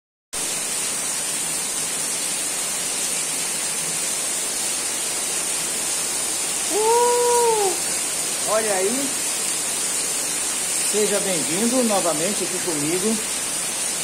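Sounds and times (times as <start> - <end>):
heavy rain: 0.4 - 14.0
man calling out: 6.7 - 9.2, 10.9 - 13.2.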